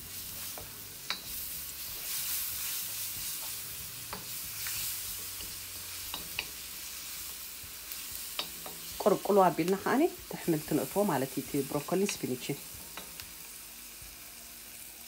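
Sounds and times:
onions sizzling in hot oil: 0.0s - 15.0s
spatula scraping and tapping pan: 0.4s - 6.7s, 7.9s - 9.2s.

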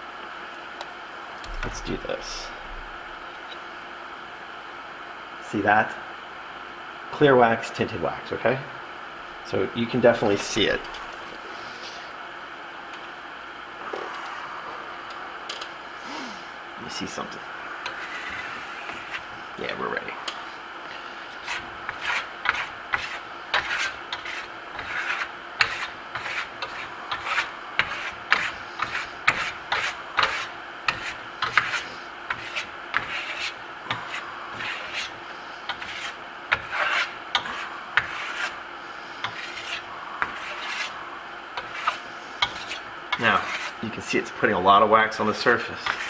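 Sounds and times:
steel trowel scraping plaster: 17.8s - 19.2s, 21.3s - 38.6s, 39.2s - 41.0s, 41.6s - 43.8s, 45.7s - 46.0s.

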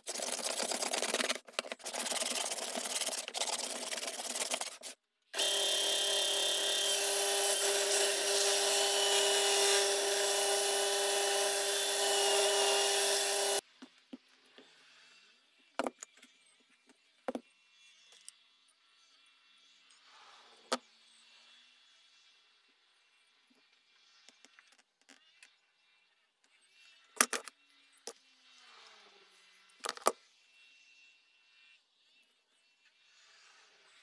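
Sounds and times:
hand plane shaving wood: 0.0s - 13.6s
belt sander running: 5.4s - 13.6s.

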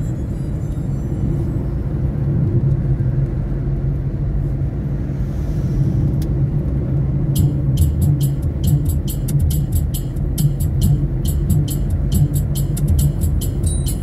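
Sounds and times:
car interior road rumble: 0.0s - 14.0s
music with a regular beat: 7.4s - 14.0s.

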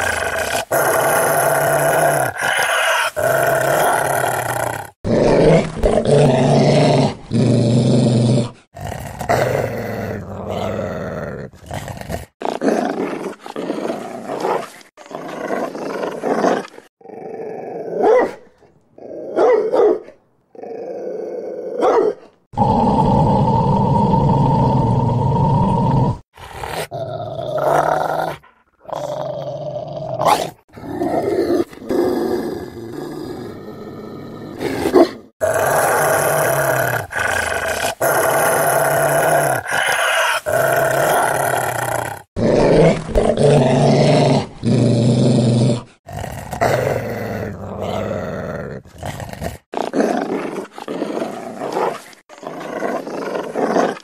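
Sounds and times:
dog growling: 0.0s - 18.0s, 22.5s - 54.0s.

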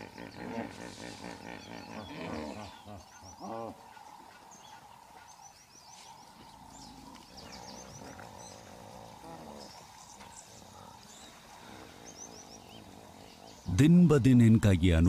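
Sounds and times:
hippopotamuses honking and grunting: 0.0s - 5.3s.

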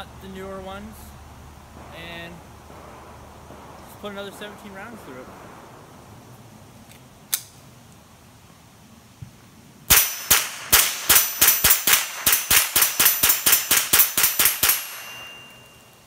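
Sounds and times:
rifle shots: 1.7s - 6.5s, 9.9s - 15.7s.

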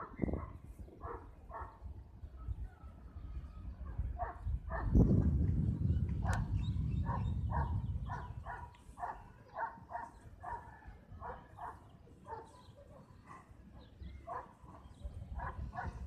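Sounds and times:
dog barking: 0.0s - 1.8s, 4.2s - 4.9s, 7.1s - 13.5s, 14.3s - 14.6s, 15.4s - 16.0s
wind rumble on microphone: 0.0s - 11.8s, 13.8s - 16.0s.

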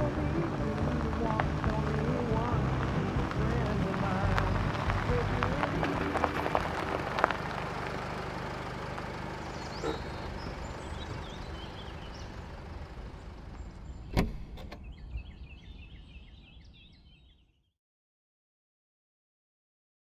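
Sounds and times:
van engine rumbling: 0.0s - 17.2s
faint bird chirps: 9.4s - 17.7s
van door shutting: 14.0s - 14.9s.

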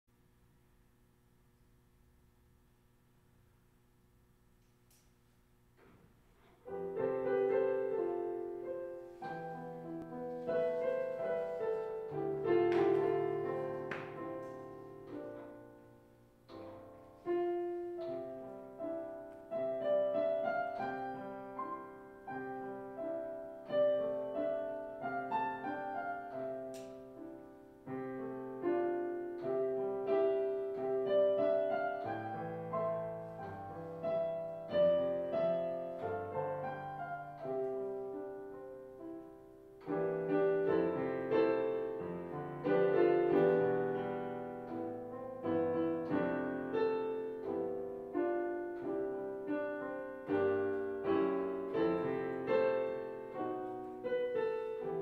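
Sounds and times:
solo piano: 5.8s - 55.0s.

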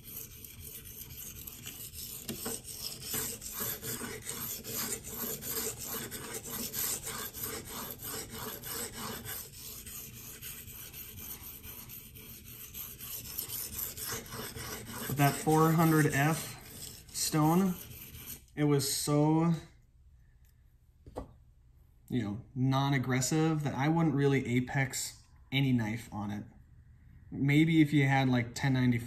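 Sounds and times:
knife scraping on whetstone: 0.0s - 18.5s.

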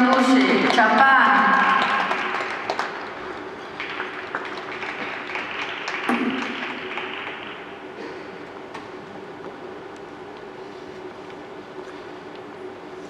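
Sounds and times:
audience applauding: 0.2s - 8.0s.

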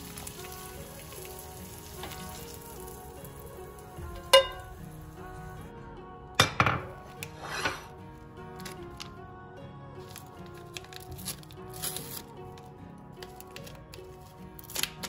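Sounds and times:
frying pan sizzling: 0.0s - 5.5s
soft background music: 0.0s - 15.0s
cup and plate knocking on stone: 6.4s - 7.0s.

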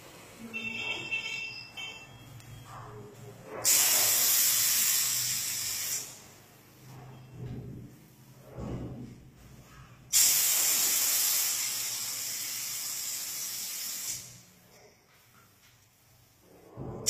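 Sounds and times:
paint spray gun hissing: 3.6s - 6.2s, 10.1s - 14.4s.

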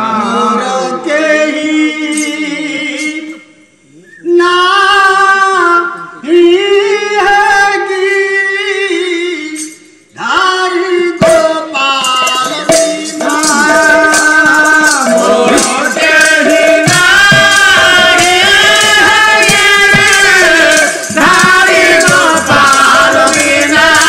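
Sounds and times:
woman singing devotional song: 10.9s - 24.0s
sharp percussion strikes: 11.1s - 24.0s.

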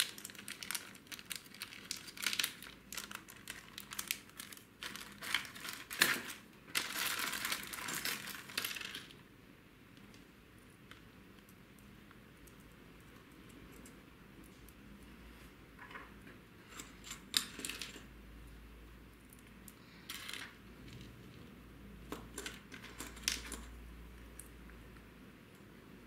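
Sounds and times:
small metal parts clinking: 22.3s - 23.7s.

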